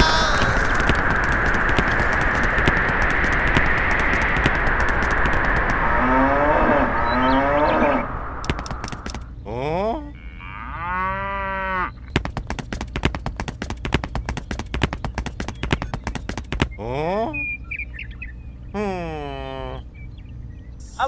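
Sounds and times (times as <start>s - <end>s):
fast run of clicks: 0.0s - 6.5s, 8.4s - 9.3s, 12.1s - 16.8s
short rising glide: 0.0s - 9.3s
cow mooing: 10.2s - 12.0s.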